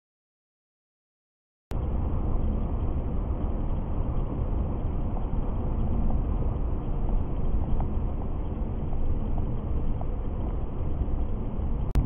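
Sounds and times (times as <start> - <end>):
car interior road rumble: 1.7 - 12.0.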